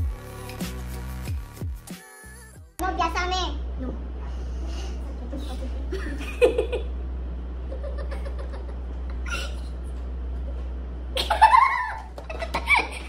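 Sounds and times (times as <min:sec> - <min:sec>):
steady low hum: 0:02.8 - 0:13.0
women laughing: 0:05.0 - 0:06.9, 0:07.6 - 0:09.8, 0:10.4 - 0:13.0
high-pitched laughing squeal: 0:09.1 - 0:09.8.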